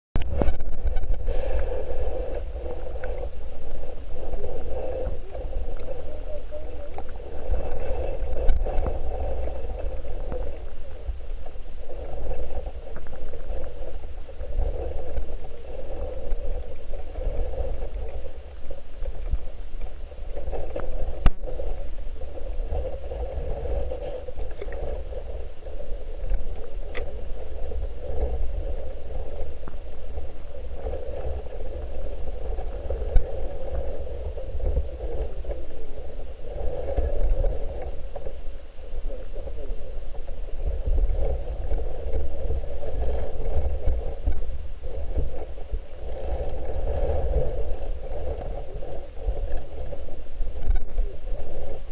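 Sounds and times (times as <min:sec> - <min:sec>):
underwater low rumble: 0:00.1 - 0:51.9
muffled water gurgling: 0:00.2 - 0:51.9
faint clicks: 0:22.7 - 0:30.0, 0:50.5 - 0:51.7.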